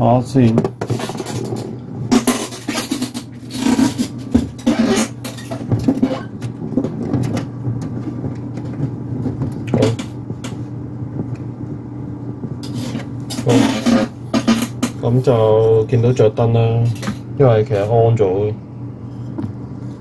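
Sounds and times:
steady low hum: 0:00.0 - 0:20.0
knocks and rubbing on metal enclosure: 0:00.5 - 0:10.6, 0:12.6 - 0:15.1.

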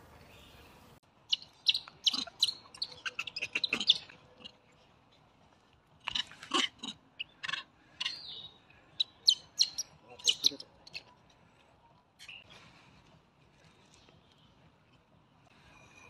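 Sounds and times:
animal chirps and squeaks: 0:01.3 - 0:04.5, 0:06.1 - 0:11.1.

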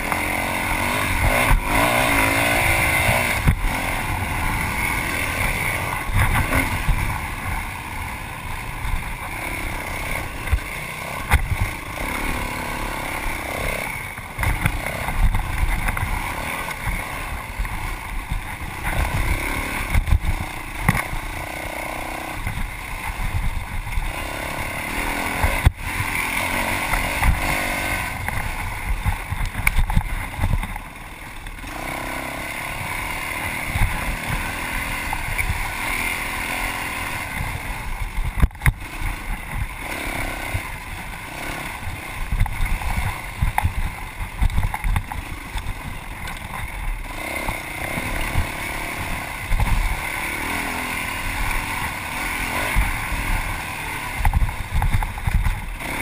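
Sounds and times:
dirt bike engine revving: 0:00.0 - 0:56.0
thumping from rough terrain: 0:00.0 - 0:56.0.

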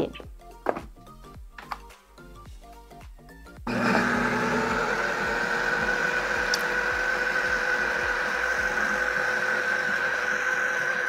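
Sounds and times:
food processor motor whine: 0:03.7 - 0:11.0.

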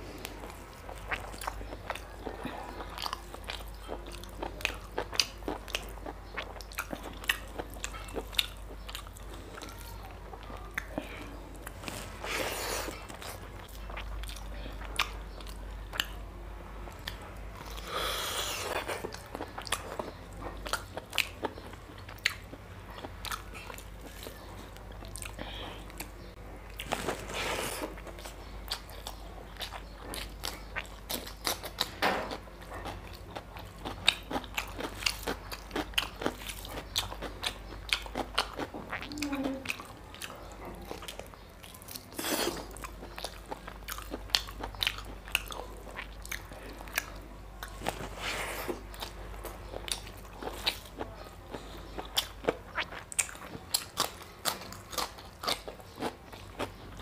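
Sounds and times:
person chewing and biting: 0:16.9 - 0:40.3, 0:40.9 - 0:56.9.

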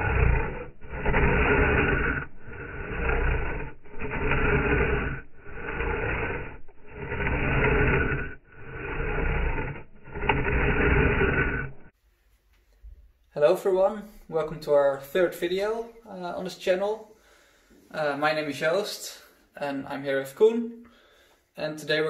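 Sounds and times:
hand saw rasping through branch: 0:00.0 - 0:11.9.

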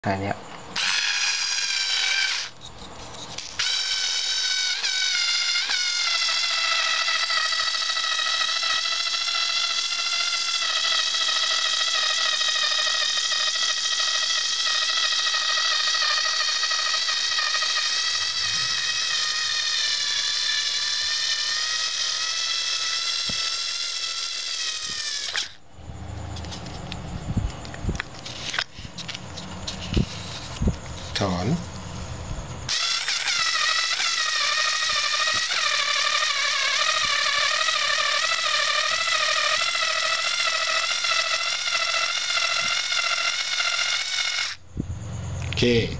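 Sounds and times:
cordless screwdriver motor whining: 0:12.9 - 0:25.6, 0:32.7 - 0:44.6.

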